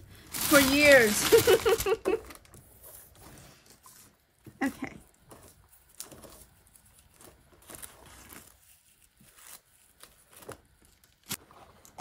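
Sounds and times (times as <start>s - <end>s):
paper shred rustling: 0.1s - 4.2s, 5.3s - 10.6s.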